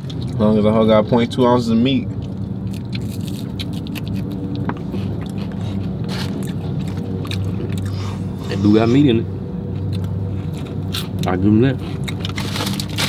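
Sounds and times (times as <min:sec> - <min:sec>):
idling car hum: 0:00.0 - 0:13.0
food being eaten: 0:02.0 - 0:13.0
paper packaging rustling: 0:12.3 - 0:13.0.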